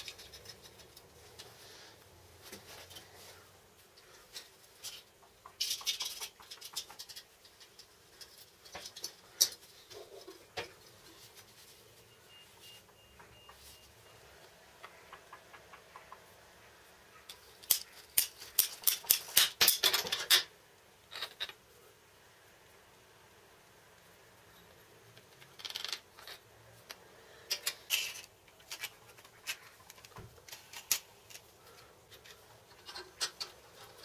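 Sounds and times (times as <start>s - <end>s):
small steel parts clinking: 17.3s - 20.5s, 25.4s - 26.4s, 27.4s - 31.5s.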